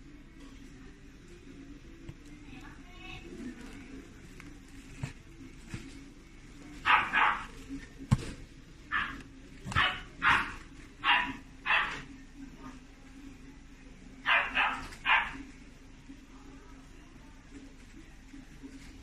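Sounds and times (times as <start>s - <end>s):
puppy barking: 6.8s - 7.6s, 8.9s - 12.1s, 14.2s - 15.5s.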